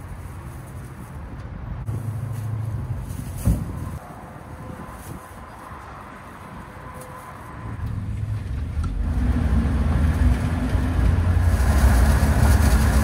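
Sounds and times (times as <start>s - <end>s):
road and wind rumble: 0.0s - 13.0s.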